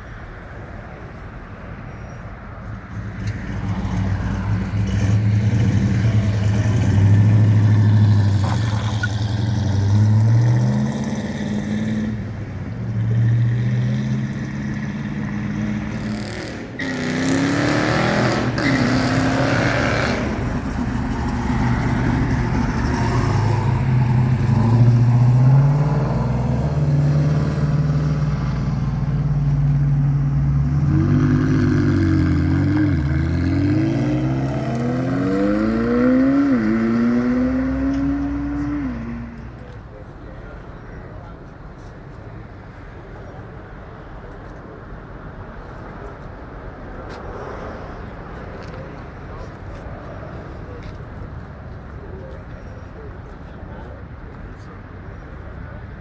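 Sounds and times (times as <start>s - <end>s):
vehicle rushing past: 2.9s - 39.6s
car engine revving: 13.0s - 39.4s.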